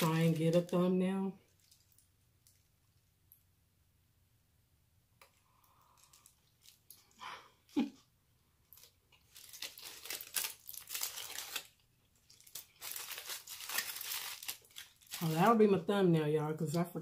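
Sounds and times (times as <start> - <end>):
food wrappers crinkling: 0.0 - 3.1, 5.4 - 7.9, 8.6 - 15.8.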